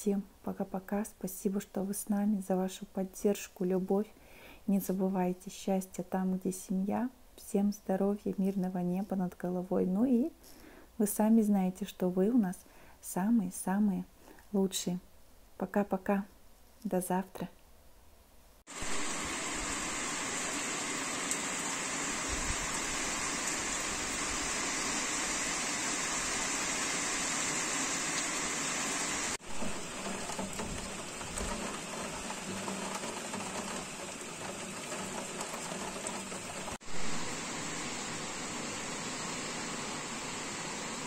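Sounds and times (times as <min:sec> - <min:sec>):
rain falling: 0:18.7 - 0:41.0.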